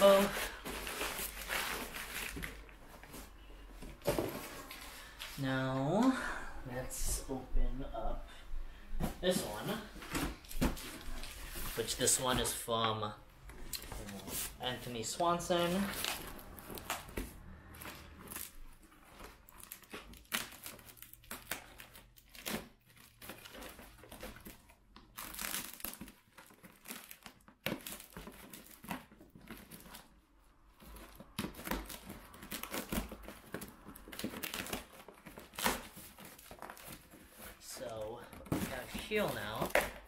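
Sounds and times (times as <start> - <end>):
packing wrap crinkling: 17.9 - 40.0.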